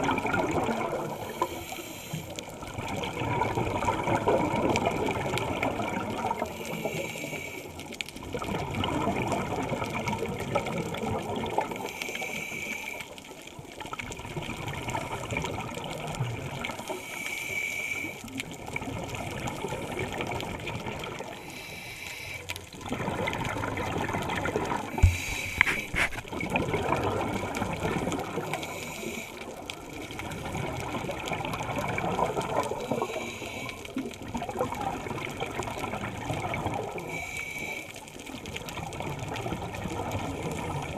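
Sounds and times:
exhale bubbling rush: 0.0 - 7.7, 16.5 - 37.9
regulator inhale hiss: 1.2 - 2.5, 6.5 - 7.8, 11.8 - 13.2, 16.8 - 18.4, 21.4 - 22.7, 24.9 - 26.3, 28.4 - 29.6, 32.8 - 34.0, 37.0 - 38.0.

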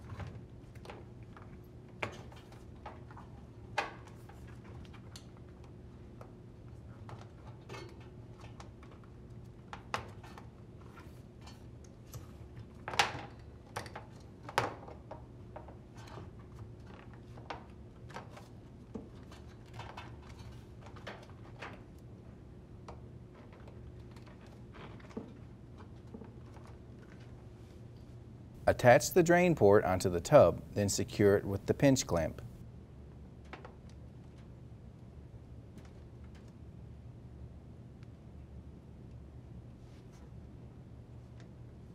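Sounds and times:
faint low hum: 28.6 - 32.6.

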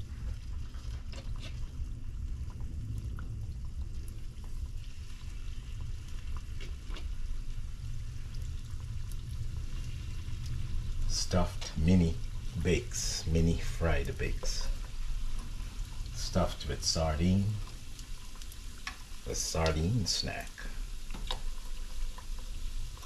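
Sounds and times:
steady low hum: 0.0 - 21.1
dough frying in hot oil: 0.0 - 23.0.

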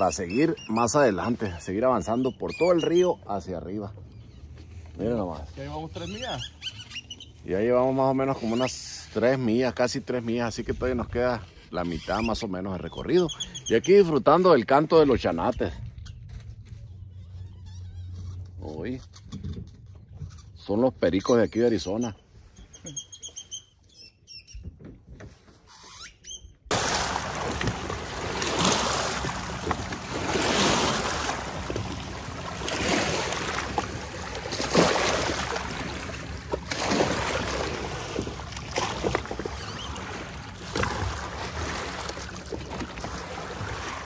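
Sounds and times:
faint bird chirps: 0.2 - 3.4, 12.0 - 14.0, 21.2 - 24.7
paddle splashing water: 26.7 - 44.0.

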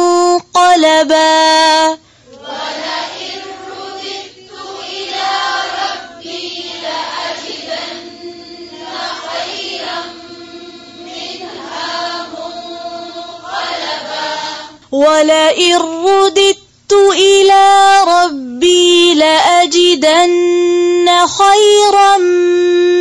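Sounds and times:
wordless choir-like humming: 2.3 - 14.8.

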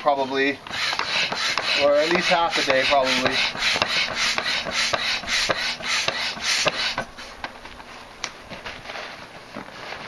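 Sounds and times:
hand air pump rushing air: 0.0 - 7.5
rustling: 7.2 - 10.0.

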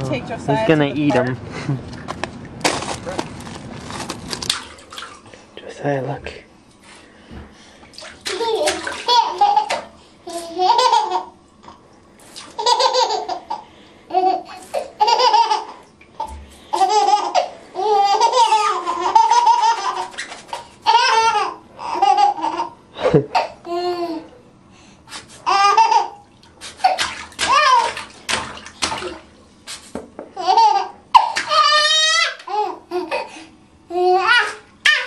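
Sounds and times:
baby laughing and squealing: 16.8 - 22.7, 26.8 - 28.0, 30.4 - 33.3, 33.9 - 35.0.

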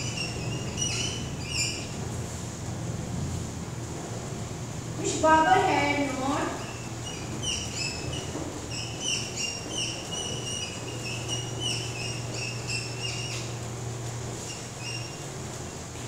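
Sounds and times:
marker squeaking on whiteboard: 0.0 - 2.0, 6.5 - 13.7, 14.4 - 15.2.

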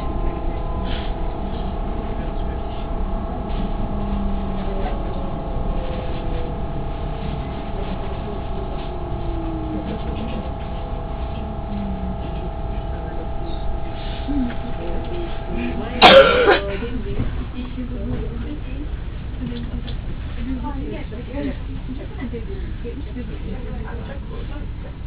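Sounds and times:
faint whine falling in pitch: 0.0 - 18.8
electric train rumble: 0.0 - 25.0
electrical hum: 0.0 - 25.0.

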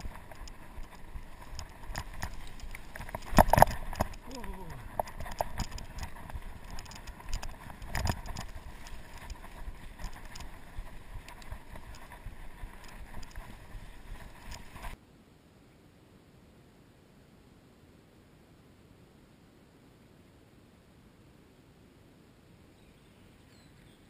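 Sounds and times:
bike clicks and rattles: 0.0 - 15.0.

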